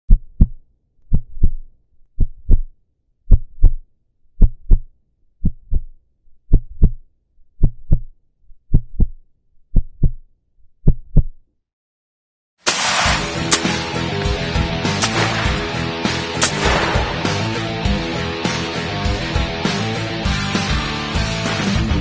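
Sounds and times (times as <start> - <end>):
heartbeat thumps: 0.1 - 1.6, 4.4 - 5.9, 6.5 - 7.0, 7.6 - 8.1, 8.7 - 10.2.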